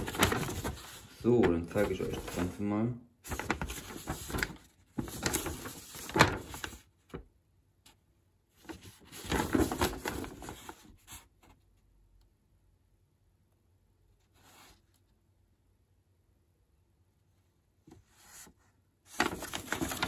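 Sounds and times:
rustling and rubbing handling noise: 0.0s - 11.9s, 14.1s - 15.2s, 17.5s - 20.0s.

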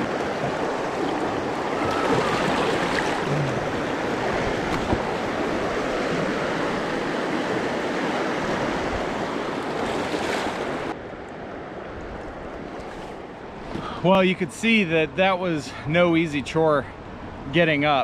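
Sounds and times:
river water rushing: 0.0s - 13.7s.

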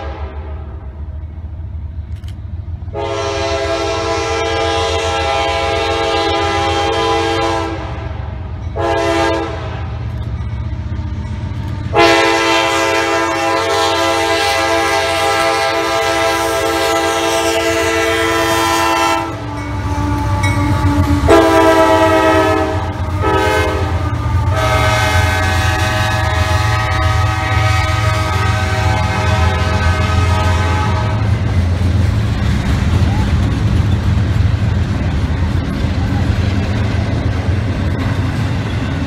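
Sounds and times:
locomotive air horn blasts: 0.0s - 0.8s, 2.9s - 8.2s, 8.8s - 10.0s, 10.7s - 31.5s
locomotive engine rumble: 0.0s - 39.0s.

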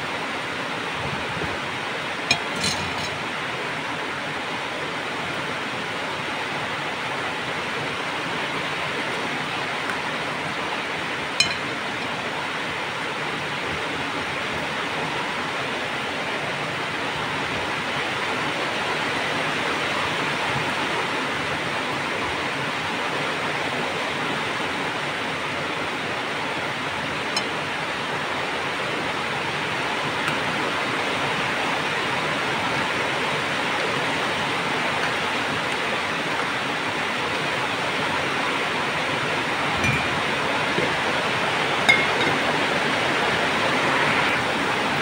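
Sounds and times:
ladle clinking against pot: 2.3s - 3.2s, 11.4s - 12.1s, 39.8s - 41.1s, 41.8s - 42.6s.

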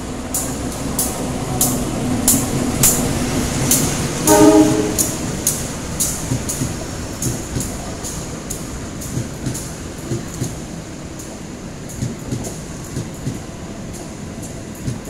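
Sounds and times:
train rumble: 0.0s - 15.0s
train horn blast: 4.2s - 5.5s.

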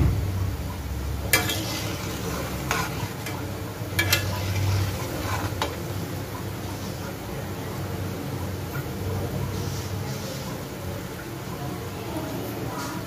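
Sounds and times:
dough frying in hot oil: 0.0s - 13.0s
metal spatula clinking on pan: 1.3s - 3.4s, 4.0s - 5.8s.

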